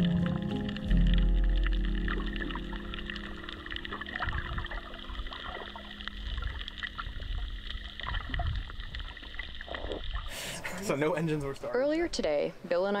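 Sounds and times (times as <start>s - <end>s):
water rumbling against camera: 0.0s - 10.5s.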